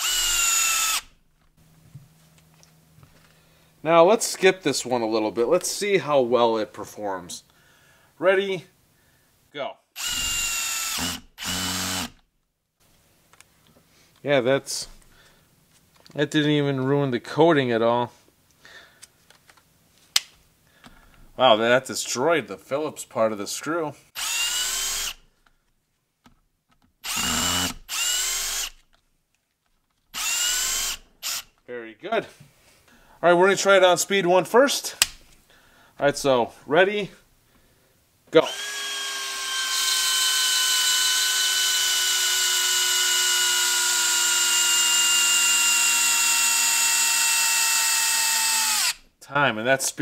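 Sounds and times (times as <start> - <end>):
drill motor whine: 0.0 - 1.1, 10.0 - 12.2, 24.2 - 25.2, 27.0 - 28.8, 30.2 - 31.4, 38.4 - 49.0.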